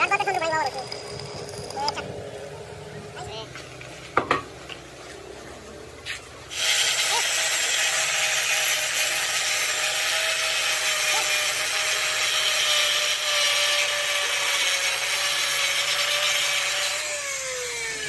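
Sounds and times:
power tool motor whine: 0.0 - 2.2, 6.5 - 18.0.

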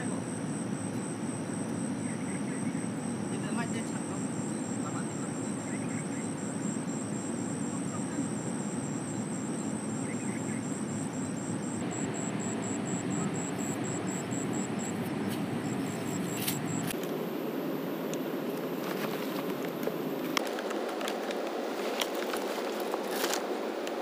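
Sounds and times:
high rapidly pulsing buzz: 0.0 - 19.2.

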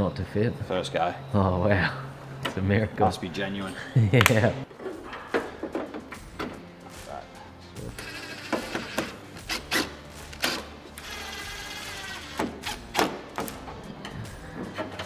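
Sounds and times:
cordless drill motor whirring: 7.9 - 9.2, 10.4 - 12.8.

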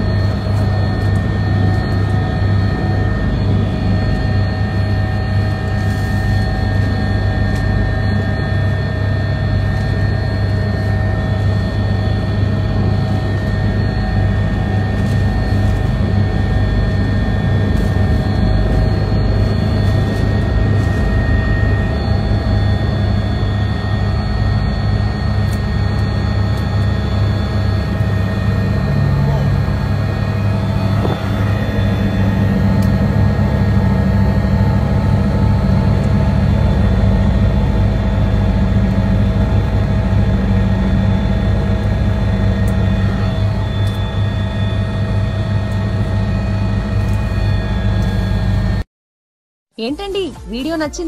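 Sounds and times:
helicopter drone inside cabin: 0.0 - 48.9.

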